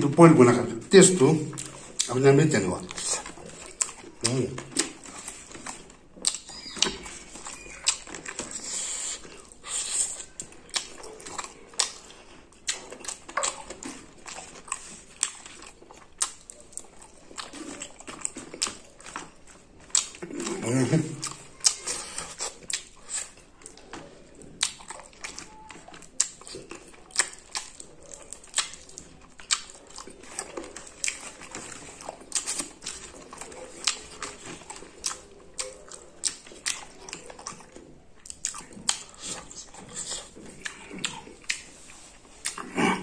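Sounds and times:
wet chewing and lip smacking: 0.0s - 43.0s
sharp mouth clicks: 6.2s - 7.1s.

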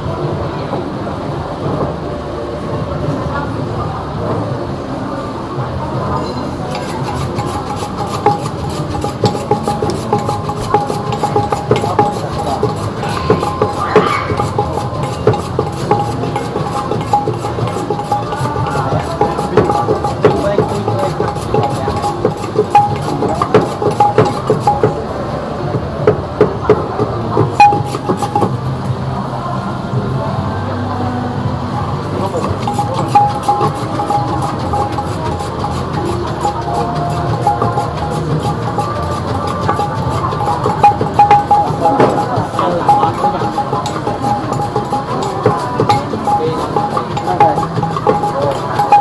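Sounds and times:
low background noise: 0.0s - 49.0s
steady low hum: 6.6s - 49.0s
metal utensils clinking on cookware: 6.7s - 25.0s, 27.4s - 28.5s, 32.2s - 49.0s.

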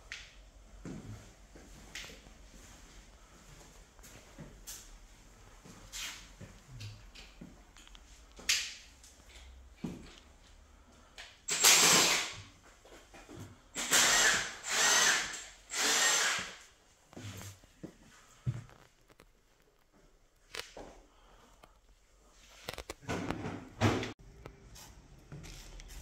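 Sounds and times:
electric drill whining: 11.5s - 12.3s, 13.8s - 16.6s.

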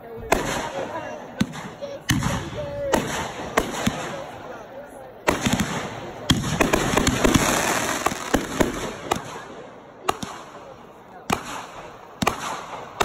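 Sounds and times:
fireworks bangs: 0.2s - 13.0s
fireworks crackle: 5.2s - 13.0s.

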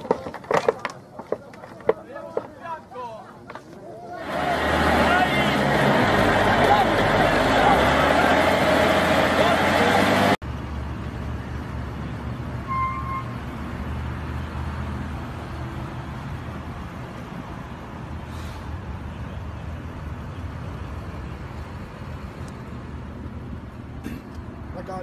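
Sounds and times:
traffic noise: 0.0s - 25.0s
low vehicle rumble: 4.0s - 12.7s
short high beep: 12.7s - 13.4s.

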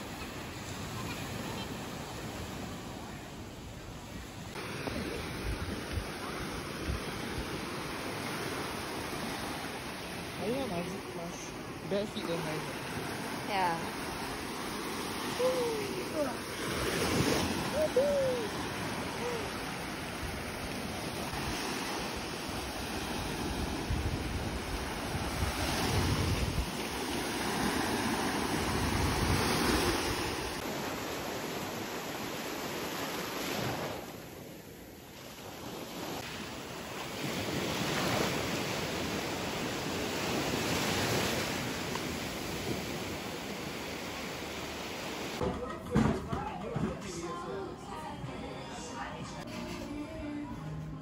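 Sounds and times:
small waves breaking on shore: 0.0s - 45.4s
wind rumbling on microphone: 4.5s - 11.3s, 15.2s - 30.7s.

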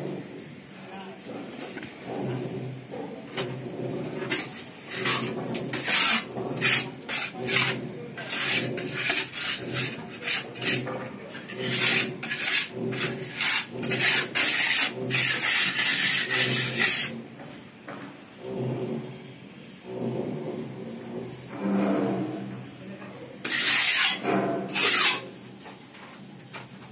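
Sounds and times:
trowel scraping wet mortar: 3.4s - 17.2s, 23.4s - 25.3s.

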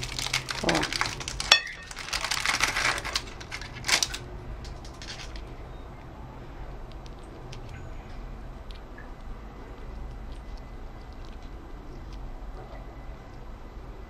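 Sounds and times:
parchment paper crinkling: 0.0s - 5.5s.

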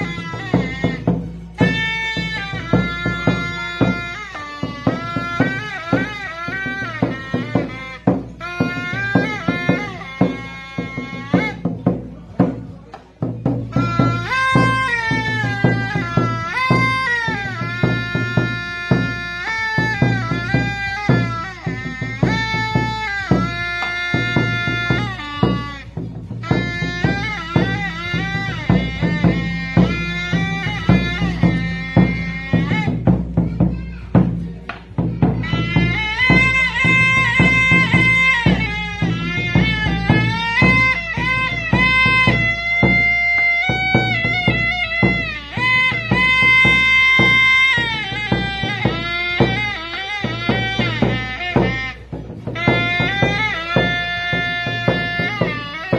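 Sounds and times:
large wooden drum beating: 0.0s - 55.9s
wooden wind pipe melody: 0.0s - 55.9s
end-blown pipe melody: 35.3s - 55.9s.

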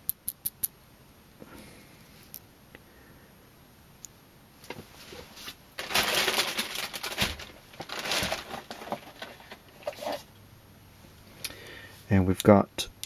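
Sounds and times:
plastic bag rustling: 4.9s - 10.3s.

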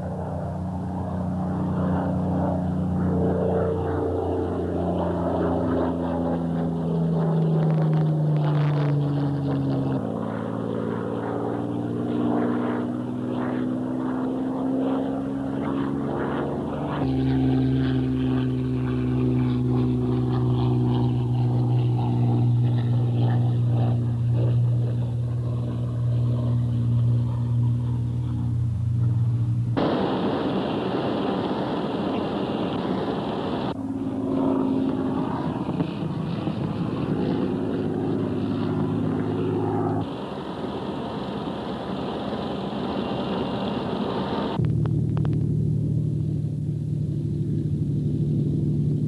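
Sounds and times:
aircraft piston engine droning: 0.0s - 49.0s
harsh rushing noise: 29.5s - 33.8s.

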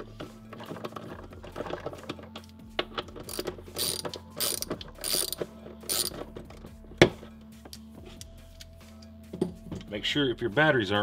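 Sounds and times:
socket ratchet clicking: 2.4s - 6.3s.

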